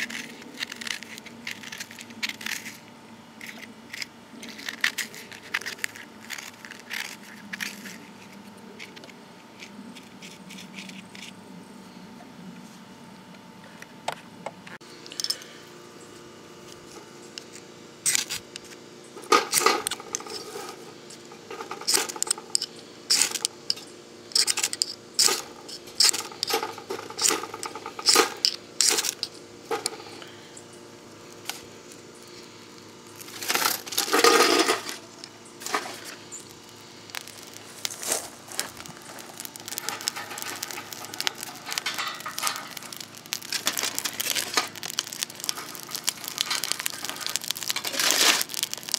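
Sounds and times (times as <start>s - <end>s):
aluminium foil crinkling: 0.0s - 11.4s, 16.8s - 30.4s, 31.3s - 48.9s
twigs snapping: 33.1s - 48.9s.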